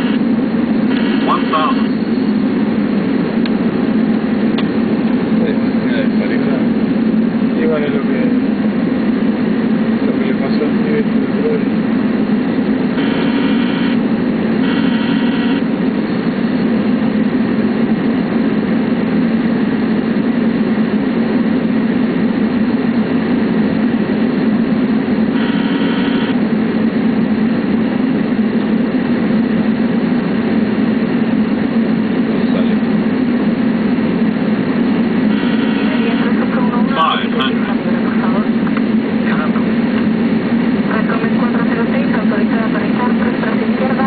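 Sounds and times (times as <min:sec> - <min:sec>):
airliner engines and airflow rushing: 0:00.0 - 0:44.0
short high buzzing bursts: 0:13.0 - 0:14.0, 0:35.3 - 0:36.3.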